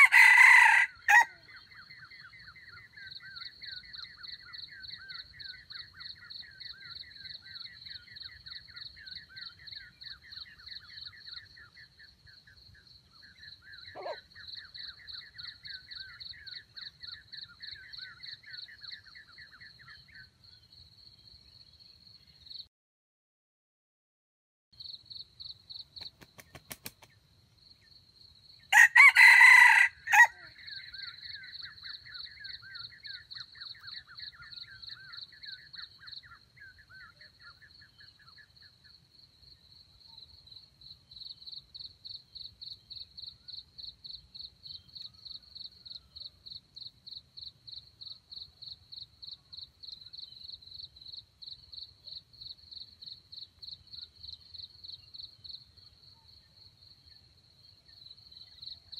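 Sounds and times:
rooster crowing: 0.0 - 1.4, 28.7 - 30.6
insects chirping: 0.0 - 22.6, 24.8 - 58.9
faint trilling call: 13.8 - 15.0.

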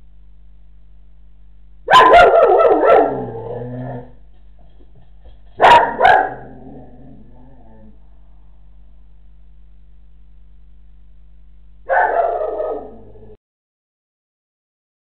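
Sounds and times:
dog barking: 1.9 - 3.3, 5.6 - 6.6, 11.9 - 13.3.

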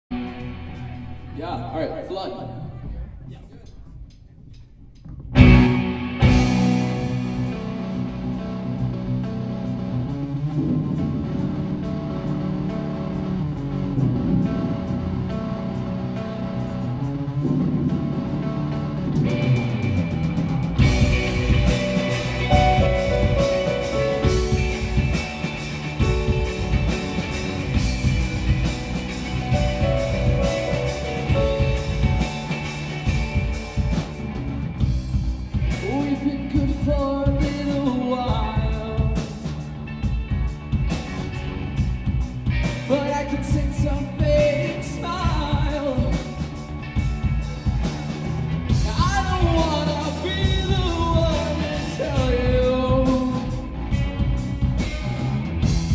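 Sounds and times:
rock band playing live: 0.1 - 1.6, 5.2 - 55.9
drum beat: 3.2 - 7.6, 19.4 - 36.0, 47.0 - 53.3
person singing: 48.8 - 53.7.

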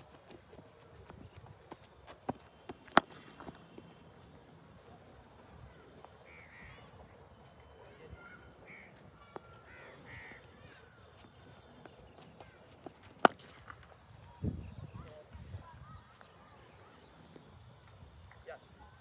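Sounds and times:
crows cawing: 6.3 - 6.9, 8.6 - 10.8.

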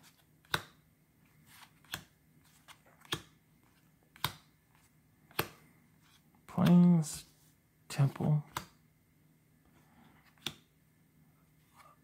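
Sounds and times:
cards snapping against stack: 0.1 - 0.8, 1.6 - 3.4, 4.1 - 4.5, 5.3 - 5.6, 8.5 - 8.8, 10.3 - 10.7.

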